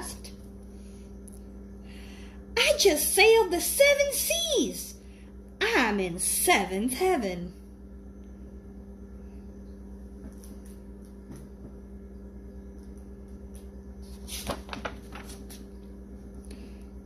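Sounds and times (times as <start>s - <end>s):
steady low hum: 0.0s - 17.0s
book page rustling: 14.0s - 15.7s.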